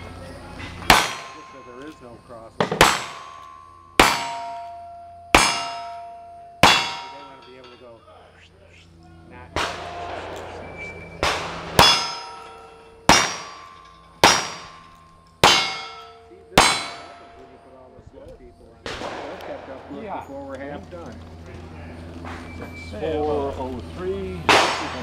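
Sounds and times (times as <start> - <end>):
steel target ringing: 0.5 - 8.3, 9.6 - 20.0
revolver shots: 9.6 - 14.7.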